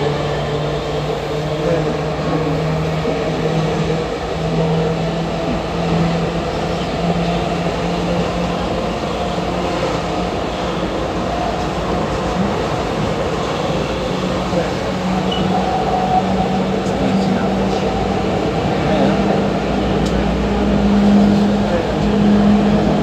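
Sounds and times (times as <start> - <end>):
train wheels rumbling on rails: 0.0 - 23.0.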